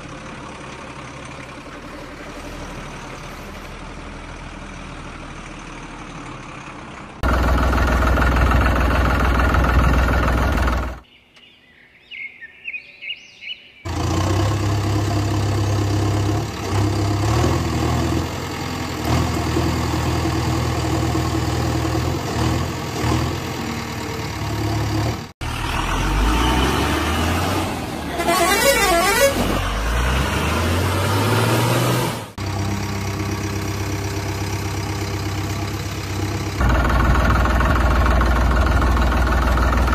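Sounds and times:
heavy vehicle engine running: 0.0s - 11.0s, 13.9s - 39.9s
vehicle horn honking: 28.1s - 29.7s.

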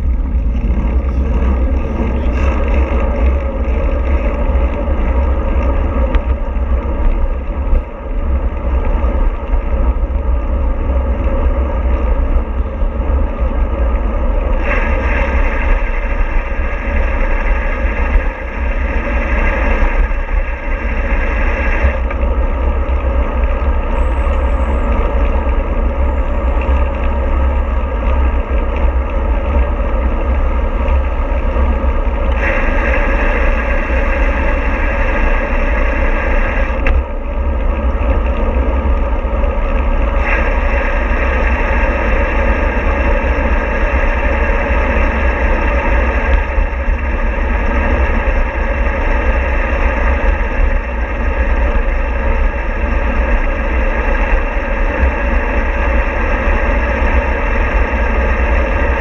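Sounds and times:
vehicle engine rumble: 0.0s - 59.0s
travel noise hiss: 12.9s - 59.0s.

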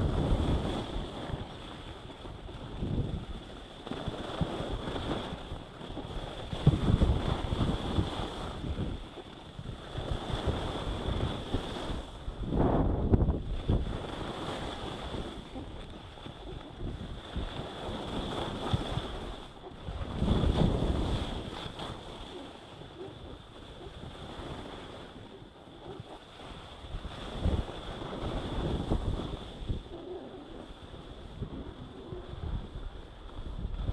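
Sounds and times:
wind on microphone: 0.0s - 33.9s
skis sliding on snow: 13.6s - 19.5s, 20.1s - 30.3s.

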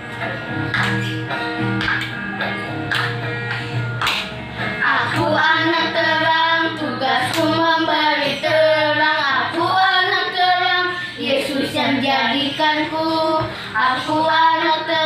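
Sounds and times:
children singing: 4.8s - 15.0s.

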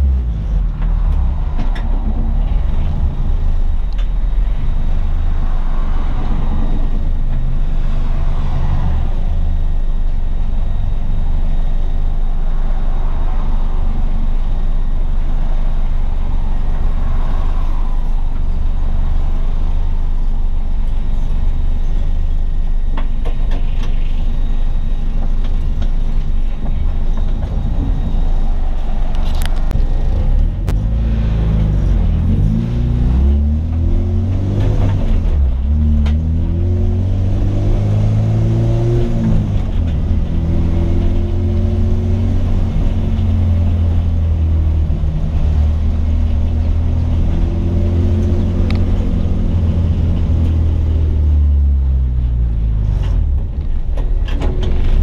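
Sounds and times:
car engine accelerating: 0.0s - 55.0s.

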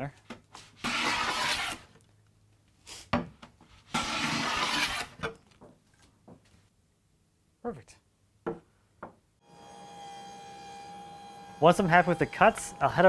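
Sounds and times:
hand plane shaving wood: 0.8s - 1.8s.

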